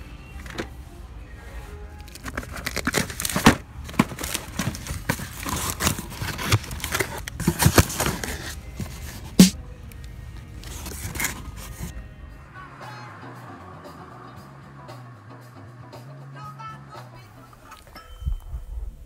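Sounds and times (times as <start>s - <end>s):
toy cars shuffling in box: 2.0s - 9.4s, 10.4s - 11.9s.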